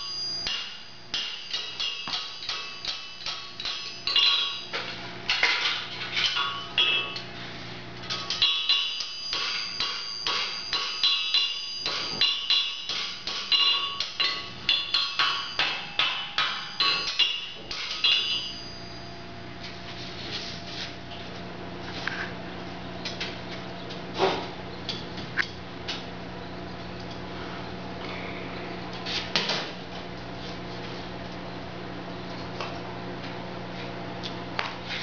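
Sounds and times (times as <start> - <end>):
faint steady hum: 0.0 - 35.0
hammer striking horseshoe on anvil: 0.4 - 7.3, 8.1 - 18.9.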